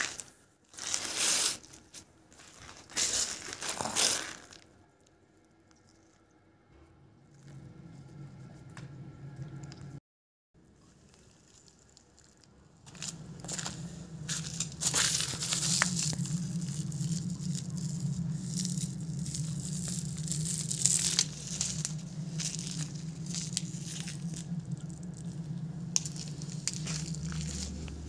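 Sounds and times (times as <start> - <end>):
crackling and rustling: 0.0 - 6.2, 10.7 - 28.0
steady low hum: 4.5 - 10.0, 11.5 - 28.0.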